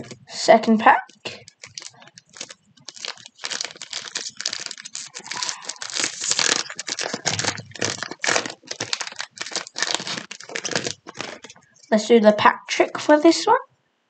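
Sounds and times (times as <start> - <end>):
foil pack crinkling: 0.0 - 0.3, 1.0 - 11.9.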